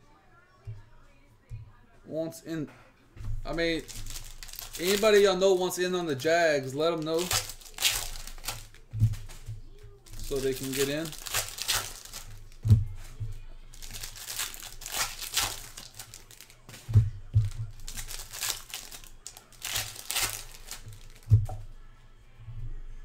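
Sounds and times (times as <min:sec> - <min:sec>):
card wrappers tearing and crinkling: 0:03.5 - 0:21.6.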